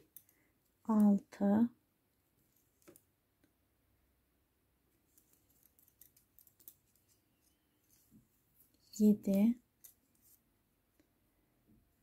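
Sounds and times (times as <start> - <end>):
knitting needles clicking: 0.0 - 1.3, 2.5 - 3.5, 5.0 - 8.0, 8.6 - 10.4.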